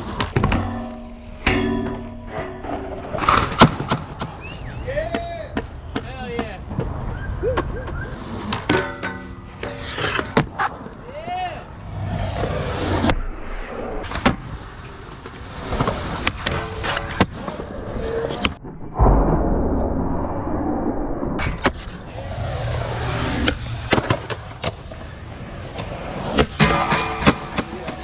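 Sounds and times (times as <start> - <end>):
skateboard sliding on rail: 0.0 - 0.5, 2.7 - 4.7, 6.7 - 11.1, 14.0 - 18.6, 21.4 - 28.0
skateboard wheels rolling on concrete: 0.0 - 0.6, 2.4 - 13.2, 14.0 - 18.6, 21.4 - 28.0
skateboard hitting metal rail: 0.2 - 4.3, 8.5 - 10.7, 25.7 - 28.0.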